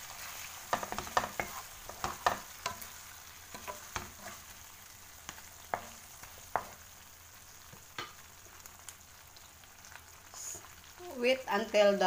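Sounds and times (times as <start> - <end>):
prawns sizzling in a pan: 0.0 - 12.0
spatula knocking on pan: 0.7 - 2.9, 3.5 - 4.3, 5.3 - 6.8.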